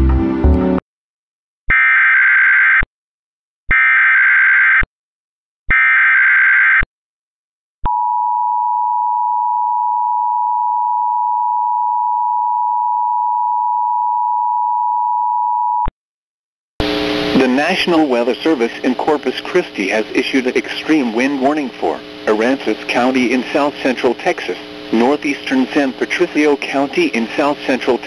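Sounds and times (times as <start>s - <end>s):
digital data tone bursts: 18.5s - 28.0s.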